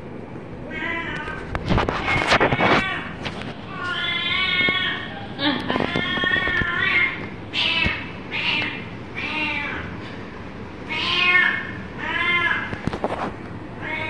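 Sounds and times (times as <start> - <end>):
young cat meowing: 5.8 - 9.8, 10.9 - 12.8.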